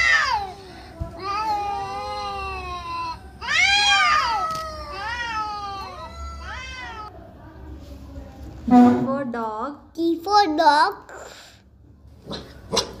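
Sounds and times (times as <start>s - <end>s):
cats yowling: 0.0s - 0.5s, 1.3s - 7.1s.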